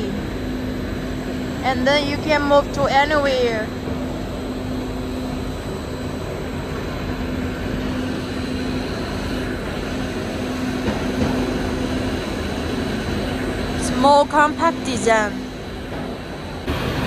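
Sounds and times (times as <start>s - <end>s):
low hum: 0.0s - 17.0s
machinery drone: 0.0s - 17.0s.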